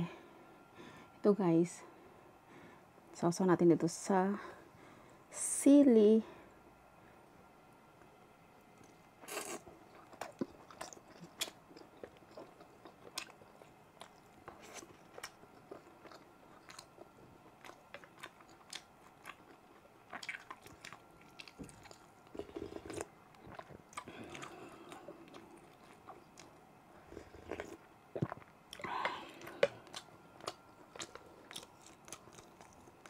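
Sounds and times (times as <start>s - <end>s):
close chewing: 8.8s - 33.0s.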